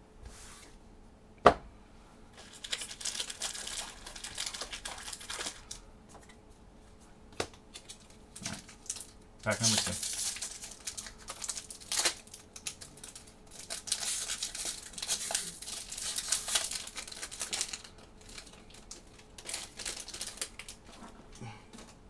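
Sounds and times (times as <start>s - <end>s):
foil wrapper tearing and crinkling: 2.4s - 5.8s, 7.7s - 21.0s.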